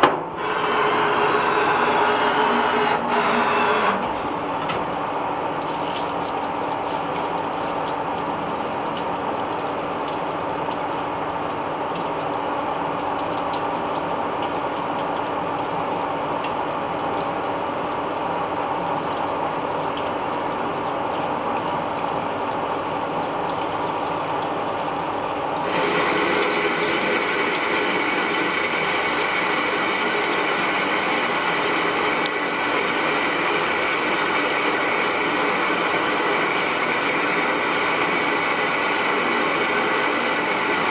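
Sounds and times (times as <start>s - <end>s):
lathe turning metal: 0.0s - 4.2s.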